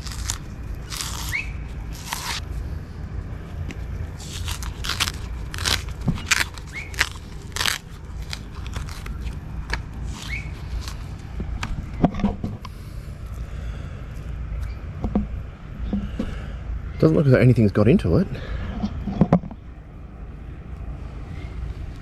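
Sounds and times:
banana peel tearing: 0:00.0 - 0:02.5, 0:03.6 - 0:11.3.

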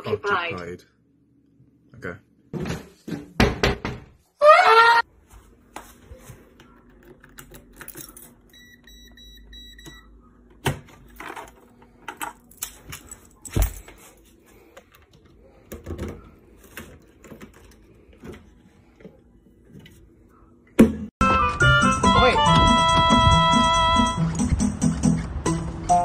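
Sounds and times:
electronic keypad beeps: 0:08.5 - 0:10.2.

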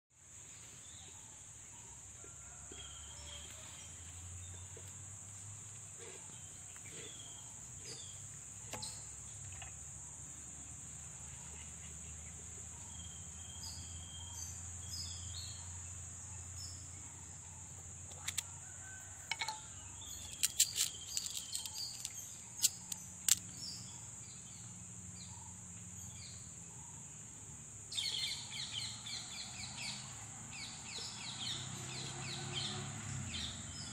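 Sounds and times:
birds chirping: 0:10.9 - 0:27.0.

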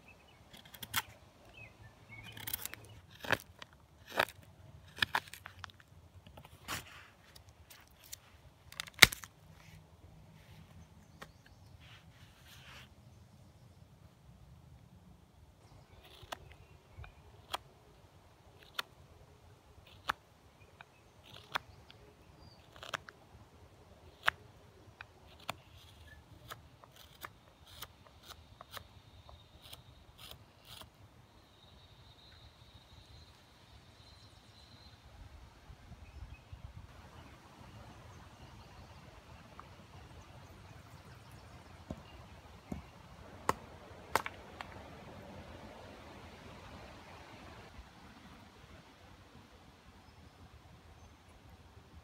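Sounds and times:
knife scraping wood: 0:02.2 - 0:05.6, 0:21.2 - 0:22.0, 0:22.6 - 0:23.1, 0:25.1 - 0:31.0
wood cracking: 0:07.3 - 0:09.4, 0:42.7 - 0:44.8.

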